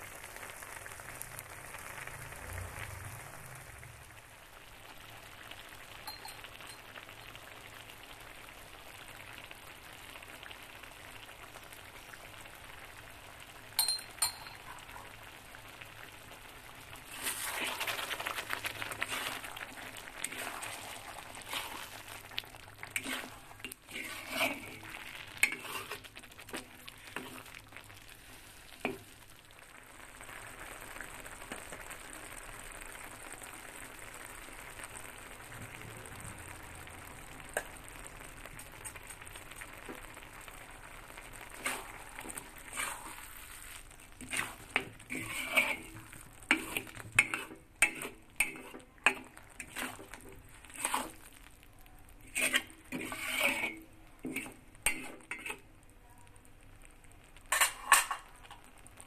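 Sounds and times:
curry sizzling: 0.0 - 59.0
metal ladle scraping a wok: 17.0 - 22.2, 22.8 - 27.6, 41.5 - 51.3, 52.2 - 55.6, 57.5 - 58.3.

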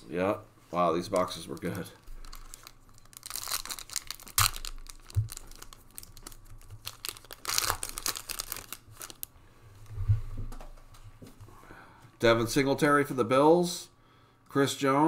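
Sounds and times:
foil wrapper tearing and crinkling: 1.3 - 9.3.

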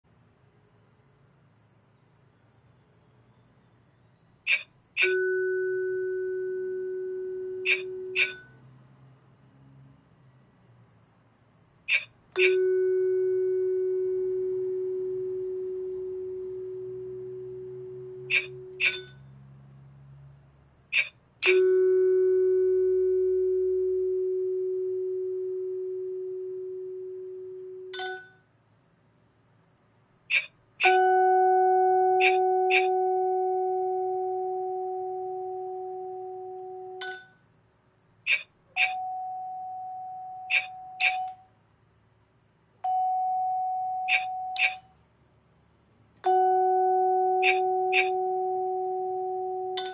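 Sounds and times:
vibraphone note ringing: 5.0 - 8.6, 11.9 - 19.3, 21.4 - 28.4, 30.8 - 37.4, 38.8 - 41.4, 42.8 - 44.9, 46.2 - 49.9
short sharp clicks: 11.9 - 12.6, 20.9 - 21.6, 38.3 - 39.0.

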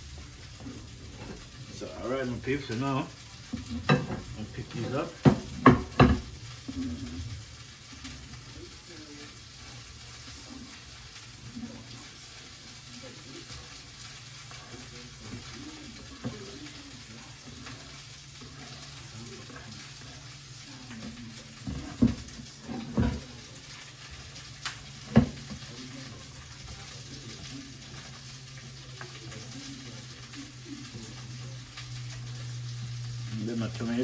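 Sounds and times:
items knocking on kitchen counter: 5.2 - 6.3, 21.6 - 23.2, 25.0 - 25.6.

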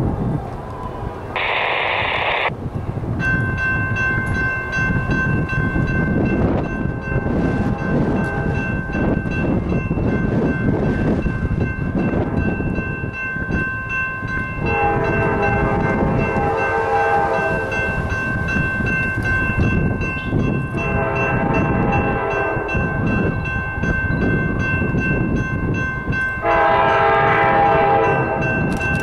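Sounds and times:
train rumble: 0.0 - 29.0
train horn chord: 7.7 - 8.8, 14.6 - 18.0, 20.8 - 23.0, 26.4 - 28.7.

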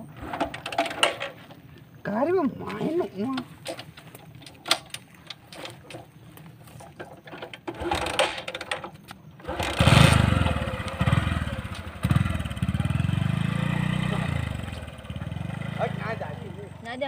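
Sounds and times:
motorcycle engine revving: 7.7 - 8.4, 9.4 - 17.0.

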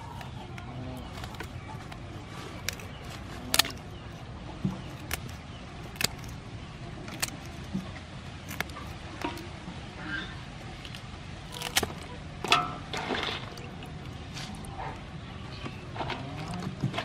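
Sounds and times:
scissors snipping crab shell: 0.0 - 6.4, 7.0 - 9.5, 10.7 - 12.1.

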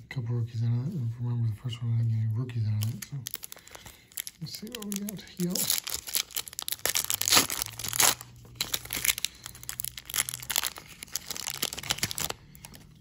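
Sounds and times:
wrapper tearing and crinkling: 2.8 - 13.0.

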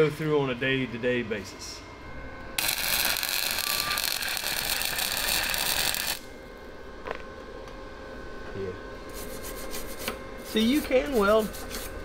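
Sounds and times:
welding arc crackling: 2.6 - 6.3.

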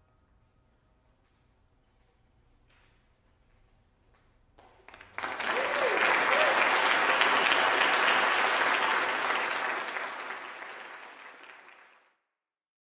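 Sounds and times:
audience applauding: 4.8 - 12.1.

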